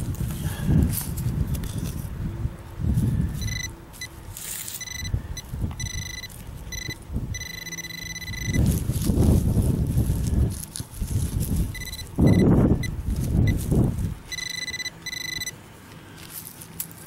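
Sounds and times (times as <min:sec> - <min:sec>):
wind rumbling on microphone: 0:00.0 - 0:14.4
pinpointer beeping: 0:03.4 - 0:04.2, 0:04.8 - 0:08.7, 0:11.7 - 0:13.6, 0:14.3 - 0:15.6.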